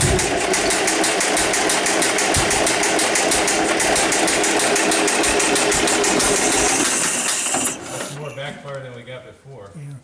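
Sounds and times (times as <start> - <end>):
engine backfire pops: 0.0 - 4.1
engine cranking on starter: 0.0 - 8.5.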